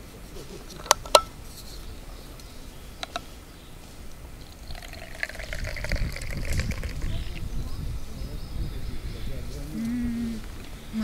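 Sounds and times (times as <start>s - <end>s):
tea pouring into cup: 4.4s - 7.4s.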